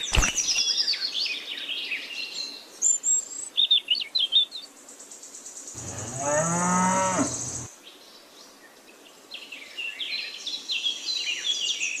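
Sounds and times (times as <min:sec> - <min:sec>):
birds chirping: 0:00.0 - 0:07.7
high insect chirr: 0:05.7 - 0:07.7
cow mooing: 0:05.8 - 0:07.7.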